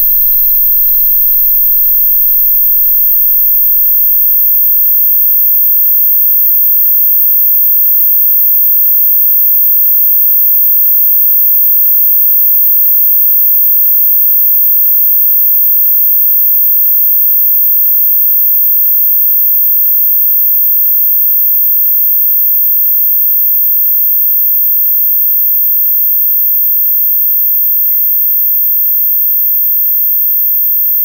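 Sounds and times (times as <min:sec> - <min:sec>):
faint thin tones: 0:00.0 - 0:02.8
high-pitched sine tone: 0:00.0 - 0:08.6.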